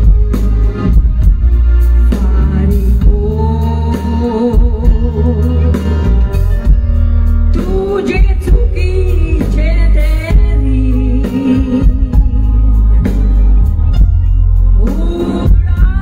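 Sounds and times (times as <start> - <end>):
backing band with bass and drums: 0.0 - 16.0
woman singing into microphone: 2.1 - 6.2, 7.5 - 12.7, 14.7 - 16.0.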